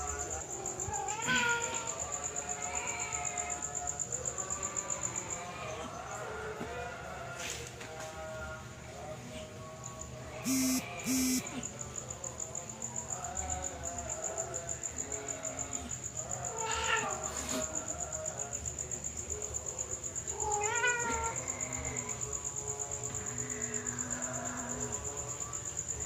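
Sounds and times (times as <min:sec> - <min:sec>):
insects chirping: 0:00.0 - 0:07.3, 0:07.9 - 0:26.0
short loud blips: 0:10.5 - 0:11.4.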